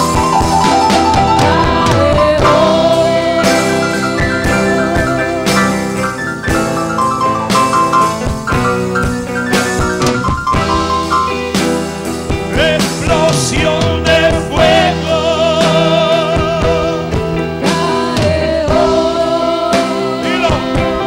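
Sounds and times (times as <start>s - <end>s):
electronic keyboard: 0.0s - 15.4s
drums: 0.0s - 21.0s
singer with vibrato: 1.4s - 6.0s, 12.6s - 21.0s.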